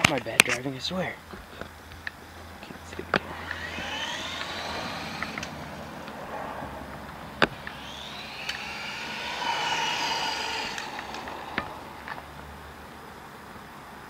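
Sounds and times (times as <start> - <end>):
rc car motor whining: 2.8 - 13.0.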